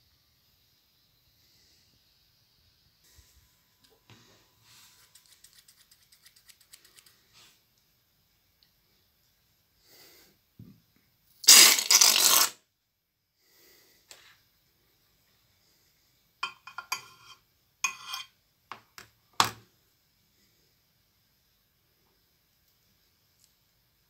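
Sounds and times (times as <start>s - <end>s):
rubber balloon crackling: 11.4s - 12.5s.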